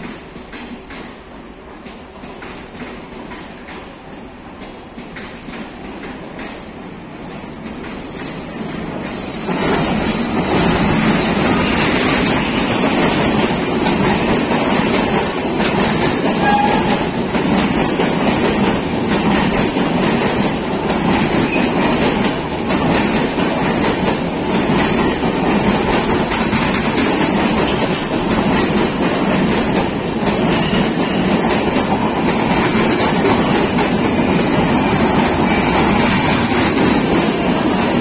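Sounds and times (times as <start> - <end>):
train rumbling past: 0.0 - 38.0
wheels clacking over rail joints: 0.0 - 38.0.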